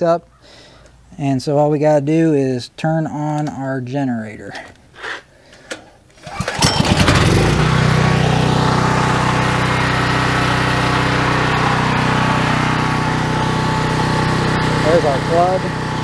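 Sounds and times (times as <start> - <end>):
generator engine starting and running: 6.2 - 16.0.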